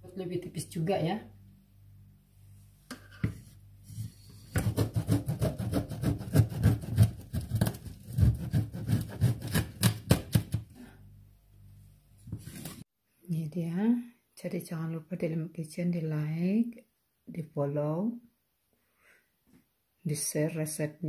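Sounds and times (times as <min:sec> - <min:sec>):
knife sawing through hard brittle: 0:04.6 - 0:10.0.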